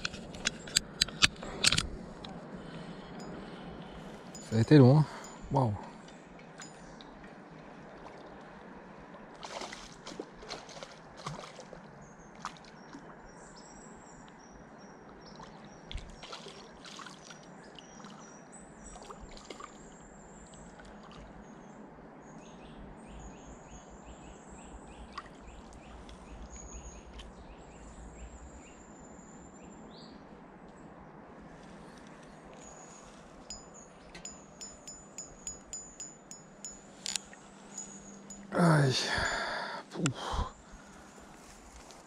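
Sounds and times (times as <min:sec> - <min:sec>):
fishing rod clicks and rustles: 0:00.0 - 0:05.4, 0:31.9 - 0:38.5
thin high whistling calls: 0:32.6 - 0:39.5.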